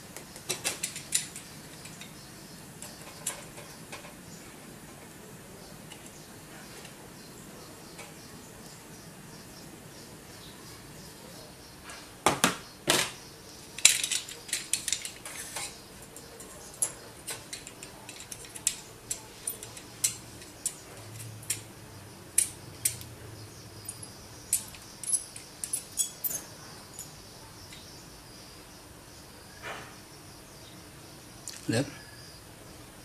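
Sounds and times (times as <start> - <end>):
metal tool clicking and tapping: 13.8 - 21.7, 22.4 - 23.1.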